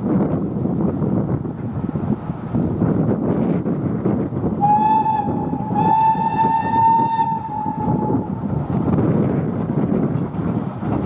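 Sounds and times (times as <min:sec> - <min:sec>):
steam engine rumble and exhaust: 0:00.0 - 0:11.0
steam locomotive whistle: 0:04.6 - 0:08.4.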